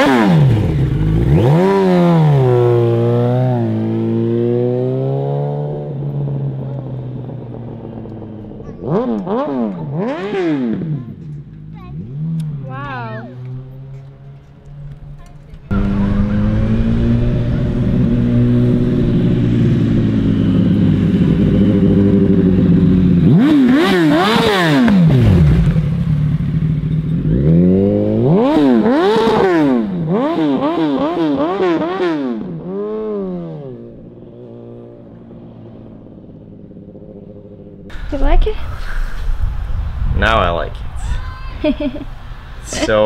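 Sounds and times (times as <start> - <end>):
motorcycle engine revving past: 0.0 - 40.7.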